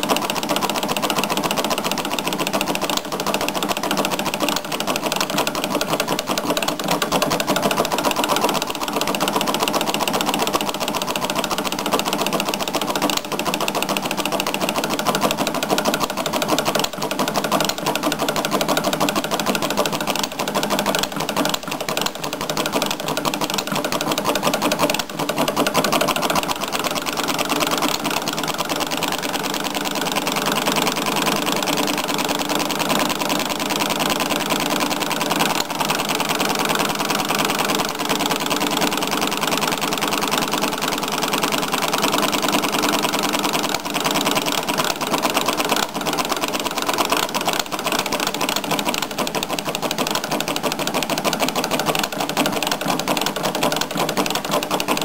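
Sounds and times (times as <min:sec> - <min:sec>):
model engine running: 0:00.0 - 0:55.0.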